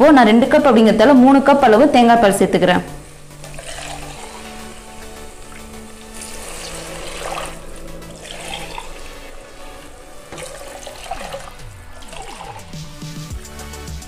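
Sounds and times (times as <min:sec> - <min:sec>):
liquid pouring and splashing: 0:03.0 - 0:13.3.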